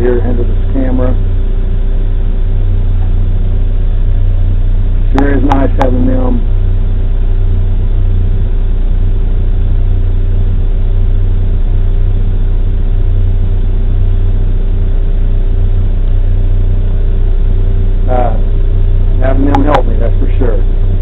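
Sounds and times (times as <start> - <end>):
backhoe engine running steadily: 0.0 - 21.0.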